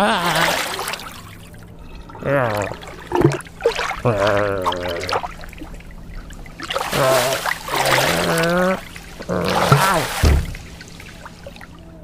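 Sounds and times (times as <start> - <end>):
low wordless vocal grumbles: 2.1 - 3.0, 4.0 - 5.2, 6.9 - 10.2.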